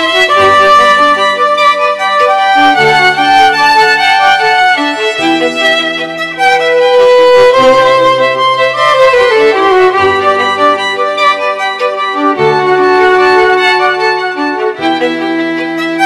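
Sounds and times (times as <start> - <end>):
instrumental music with held notes: 0.0 - 16.0.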